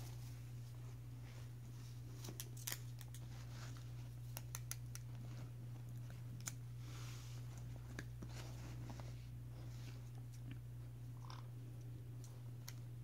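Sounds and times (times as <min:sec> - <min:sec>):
steady low hum: 0:00.0 - 0:13.0
sharp clicks and snaps: 0:04.3 - 0:05.1.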